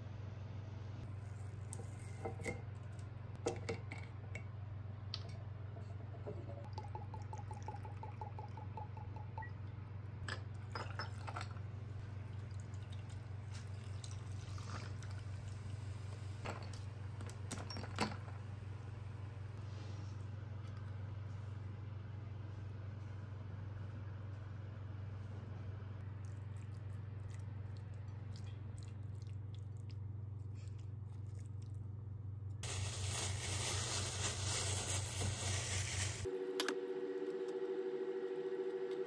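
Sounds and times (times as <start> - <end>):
low hum: 0.0 - 33.2, 34.1 - 39.0
glass and tableware clinking: 10.3 - 11.6.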